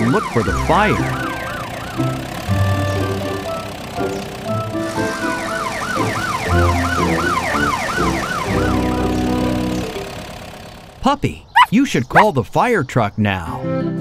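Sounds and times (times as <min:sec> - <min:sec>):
cartoon police siren yelping: 0:00.0 - 0:03.7, 0:05.0 - 0:10.0, 0:11.6 - 0:12.3
background music: 0:00.0 - 0:10.0.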